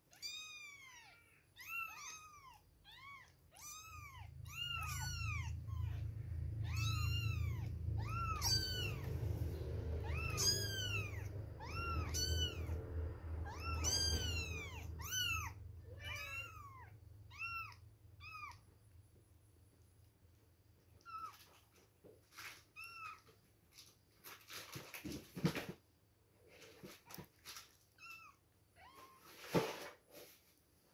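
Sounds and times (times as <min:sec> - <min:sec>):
kittens mewing: 0:00.2 - 0:18.7
low rumble: 0:04.6 - 0:16.0.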